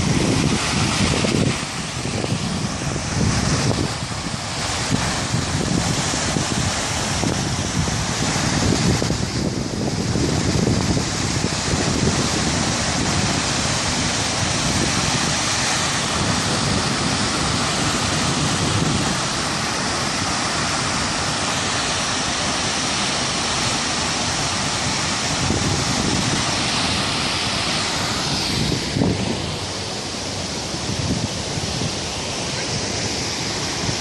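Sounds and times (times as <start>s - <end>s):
waterfall rushing: 0.0s - 34.0s.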